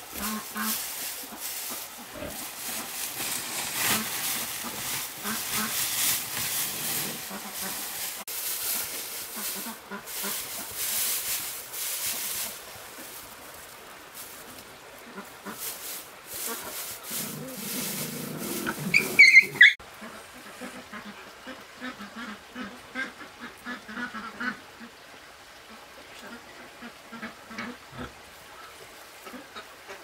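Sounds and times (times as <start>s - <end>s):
hiss: 0.0s - 13.4s
high-pitched animal calls: 17.4s - 19.8s.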